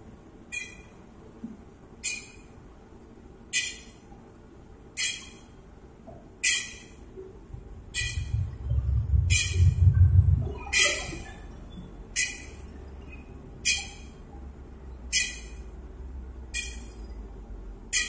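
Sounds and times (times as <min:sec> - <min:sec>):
low rumble: 0:07.5 - 0:11.7.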